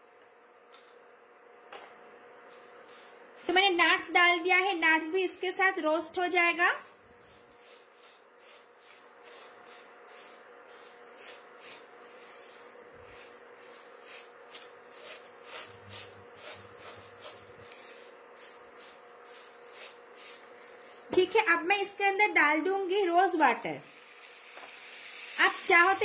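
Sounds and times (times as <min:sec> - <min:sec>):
spatula scraping in a pan: 0:02.4 - 0:05.8, 0:06.4 - 0:21.4.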